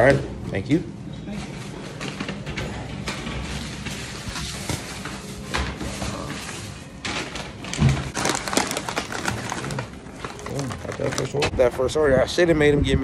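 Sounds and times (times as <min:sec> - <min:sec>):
food packaging handling noises: 0:01.3 - 0:11.6.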